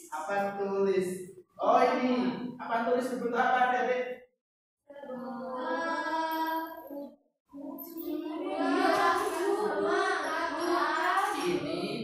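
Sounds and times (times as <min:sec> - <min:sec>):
group of voices singing: 0:04.9 - 0:06.9, 0:07.6 - 0:12.0.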